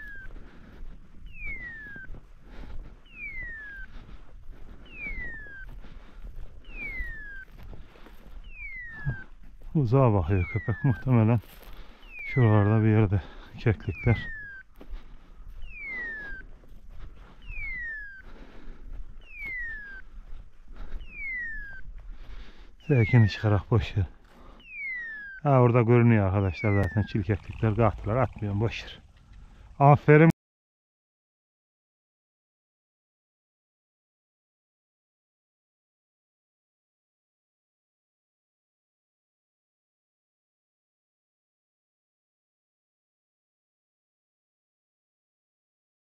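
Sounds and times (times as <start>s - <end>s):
falling mewing collar whistle: 1.3s - 2.1s, 3.0s - 3.9s, 15.6s - 16.5s, 17.4s - 18.2s, 21.0s - 21.8s
falling whistle-like beeper tone: 1.3s - 2.1s, 17.4s - 18.2s, 24.6s - 28.6s.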